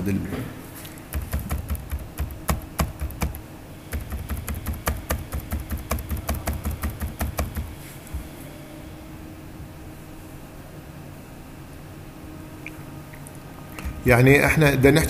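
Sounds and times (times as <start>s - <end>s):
computer keyboard typing: 1.0s - 7.8s.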